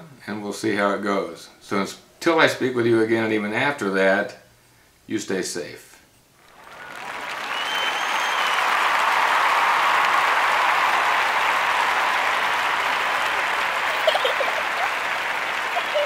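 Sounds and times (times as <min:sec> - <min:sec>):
crowd applause and cheering: 0:06.4 - 0:16.0.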